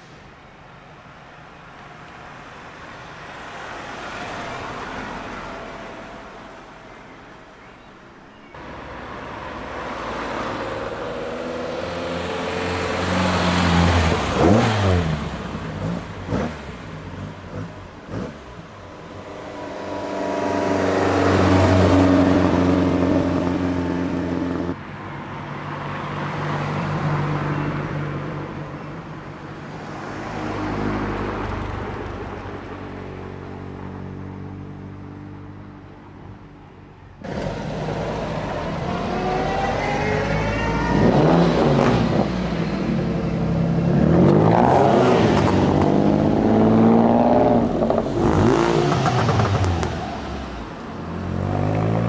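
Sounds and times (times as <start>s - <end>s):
cars accelerating past: 8.6s - 24.8s, 37.2s - 52.0s
engine revving hard: 37.3s - 42.5s, 43.9s - 49.9s.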